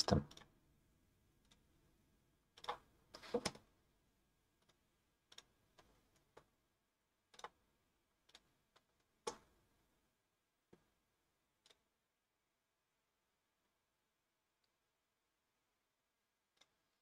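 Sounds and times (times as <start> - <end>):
computer mouse clicks: 7.3 - 7.6.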